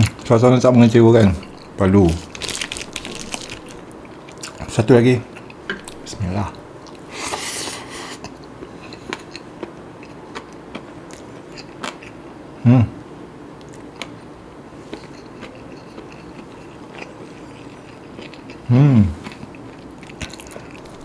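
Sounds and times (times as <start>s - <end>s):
person chewing food: 1.2s - 4.7s, 5.3s - 6.1s, 6.8s - 12.2s, 13.6s - 21.0s
person humming: 18.7s - 19.2s.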